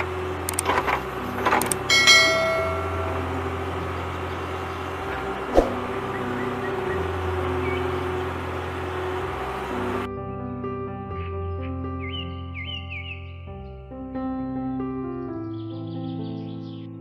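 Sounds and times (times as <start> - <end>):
low hum: 0.0 - 10.1
bright bell chime: 1.9 - 3.9.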